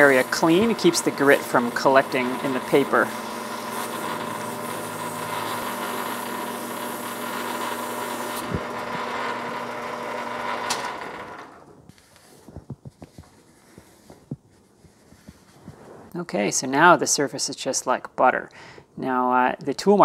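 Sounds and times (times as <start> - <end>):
emery paper hissing on workpiece: 0.0 - 8.6
metal lathe running: 0.0 - 11.6.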